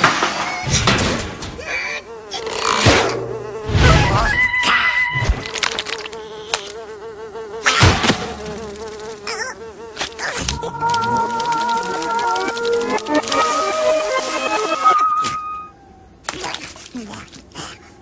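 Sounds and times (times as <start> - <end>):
wavering insect-like buzz: 1.6 - 15.8.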